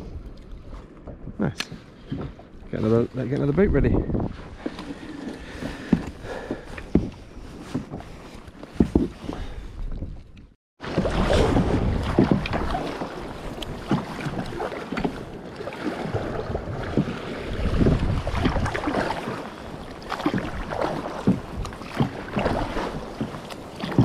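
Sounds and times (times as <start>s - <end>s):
wind buffeting microphone: 0.0s - 7.5s, 11.0s - 15.4s, 16.1s - 23.3s
paddle splashing in water: 4.2s - 9.7s, 10.8s - 24.0s.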